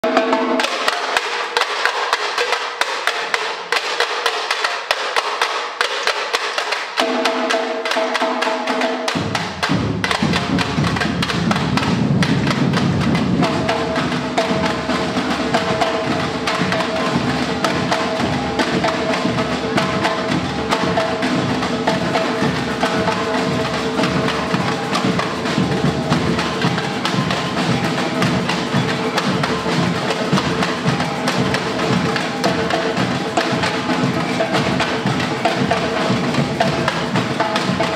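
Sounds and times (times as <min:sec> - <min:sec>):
rapid tamborim strokes: 0:00.0 - 0:37.9.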